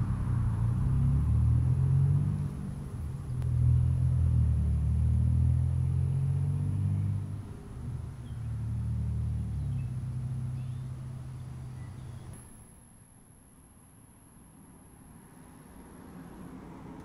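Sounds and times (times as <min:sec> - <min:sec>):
low engine rumble: 0:00.0 - 0:12.4.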